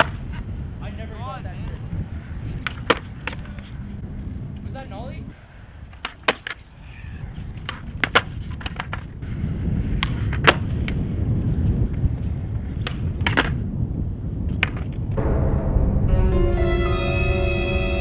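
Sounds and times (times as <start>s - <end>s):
skateboard wooden clacks: 2.6s - 3.8s, 5.9s - 6.6s, 7.4s - 9.2s, 9.9s - 11.0s, 12.6s - 13.6s, 14.5s - 15.0s
low rumble: 15.2s - 18.0s.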